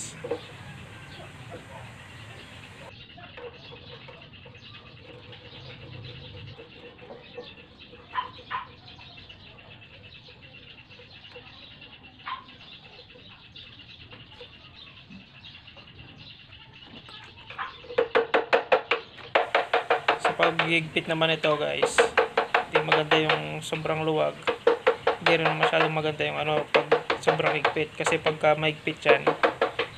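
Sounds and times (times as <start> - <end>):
hand tool tapping metal nut: 18.0 - 29.9.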